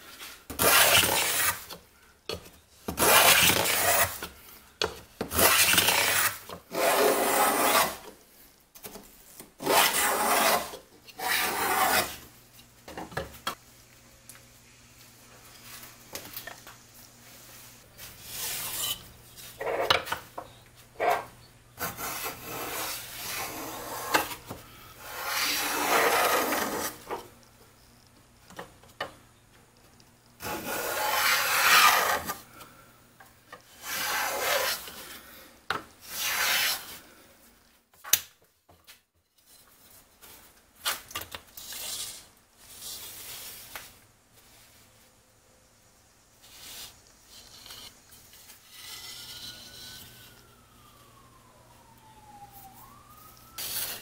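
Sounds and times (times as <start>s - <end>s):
hand plane shaving wood: 0.6s - 1.7s, 3.0s - 4.2s, 5.3s - 8.0s, 9.6s - 12.2s, 25.1s - 27.0s, 30.4s - 32.4s, 33.8s - 34.9s.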